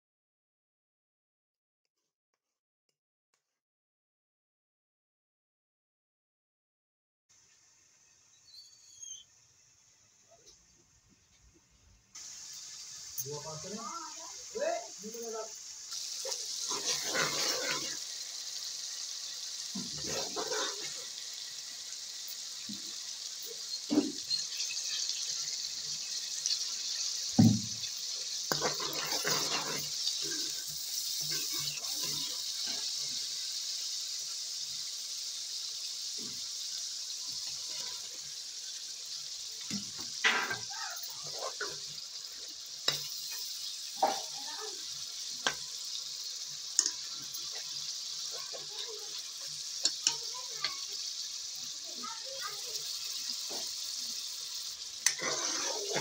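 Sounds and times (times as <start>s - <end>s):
food sizzling in hot oil: 7.3s - 56.0s
spatula scraping and knocking pan: 16.2s - 18.1s, 19.7s - 21.1s, 26.4s - 32.9s, 39.7s - 41.9s, 42.8s - 44.4s, 55.0s - 56.0s.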